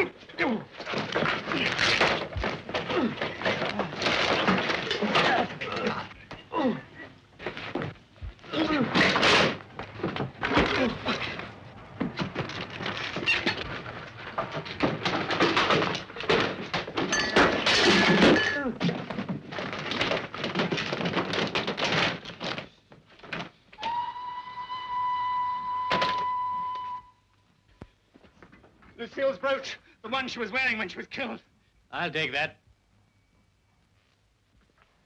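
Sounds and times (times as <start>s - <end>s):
thuds and crashes against furniture: 0.8s - 5.7s, 7.4s - 23.5s
men grunting: 2.8s - 4.0s, 5.0s - 7.0s
pottery smashing: 15.2s - 18.8s.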